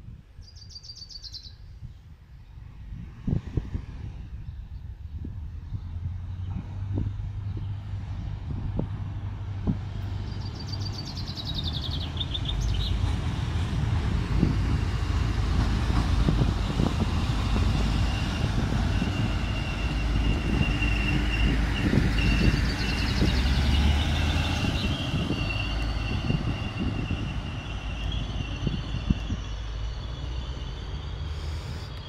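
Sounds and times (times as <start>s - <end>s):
train rumbling past: 0.1s - 32.0s
thin high whine: 30.8s - 32.0s.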